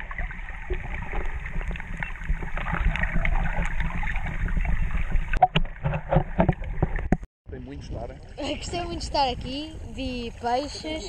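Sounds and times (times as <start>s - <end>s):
small underwater crackles and clicks: 0.0s - 7.3s
muffled underwater rushing: 0.0s - 11.0s.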